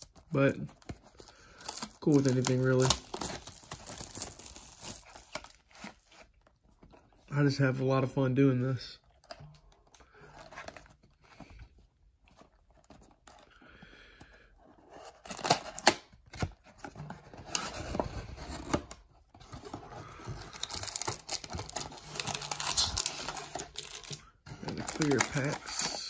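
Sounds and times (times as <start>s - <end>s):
cardboard ripping: 0.0s - 6.3s, 14.9s - 26.0s
cardboard rustling: 0.0s - 7.8s, 9.0s - 26.0s.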